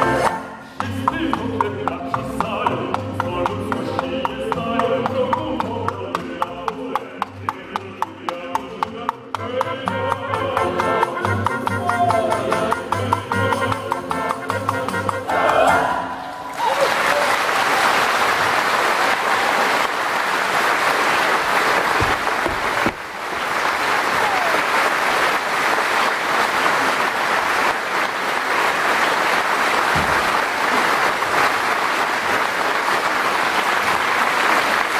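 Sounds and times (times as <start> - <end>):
audience applauding: 16.3 - 34.9.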